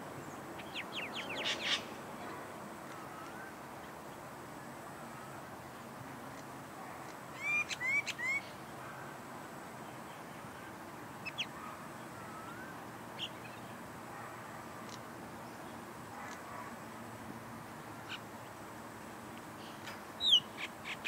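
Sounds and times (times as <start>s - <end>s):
faint bird chirps: 9.9s - 13.8s, 19.6s - 21.0s
myna whistled calls and clicks: 19.4s - 21.0s.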